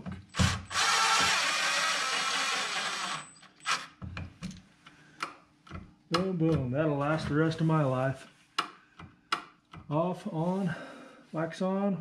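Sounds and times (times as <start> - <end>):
impact driver driving screw: 0.4 - 4.0.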